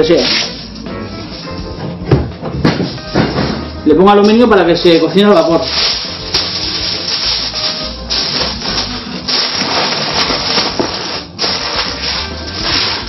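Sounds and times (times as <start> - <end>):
aluminium foil crinkling: 4.2 - 13.0.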